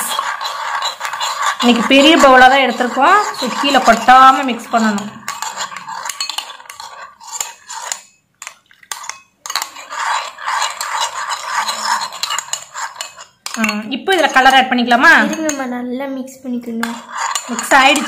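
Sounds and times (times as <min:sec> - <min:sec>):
spoon scraping glass bowl: 0:00.0 - 0:15.6, 0:16.8 - 0:18.0.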